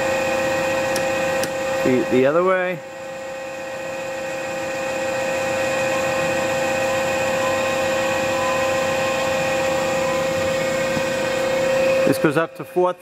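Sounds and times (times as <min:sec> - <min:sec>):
lathe drive whining: 0:00.0 - 0:13.0.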